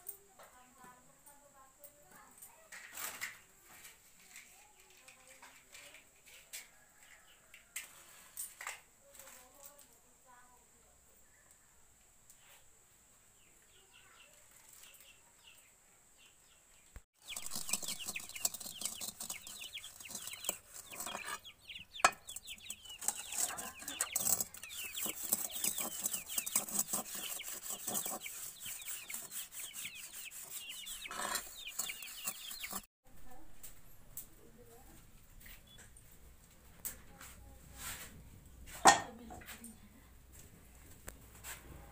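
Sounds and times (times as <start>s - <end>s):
birds chirping: 13.3s - 32.9s
metal wok being scrubbed: 17.2s - 32.9s
sharp metallic clank: 38.9s - 39.1s.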